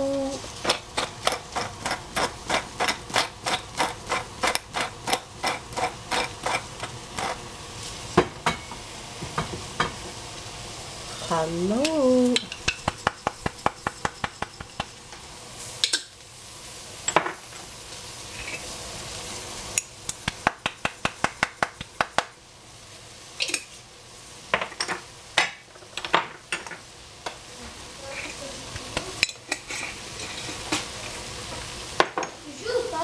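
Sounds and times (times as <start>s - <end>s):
food sizzling: 0.0s - 33.0s
utensil scraping frying pan: 0.3s - 8.8s, 11.1s - 16.2s, 17.0s - 19.8s, 28.0s - 32.2s.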